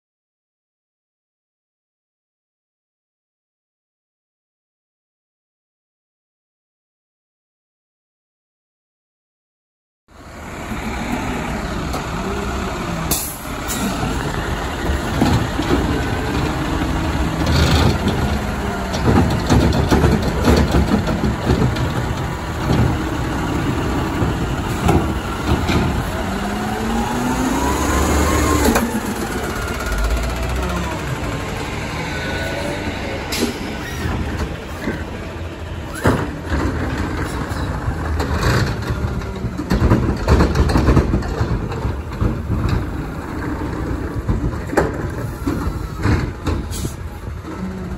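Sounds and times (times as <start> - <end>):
garbage truck engine revving: 10.2 - 47.9
air brake hisses: 46.7 - 47.0.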